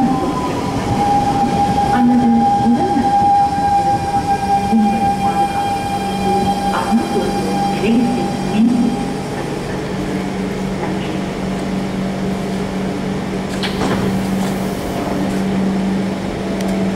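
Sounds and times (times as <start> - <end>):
metro train humming: 0.0 - 16.9
train doors sliding open: 13.4 - 15.6.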